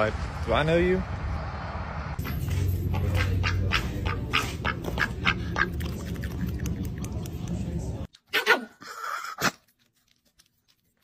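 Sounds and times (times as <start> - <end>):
duck quacking: 2.9 - 6.1.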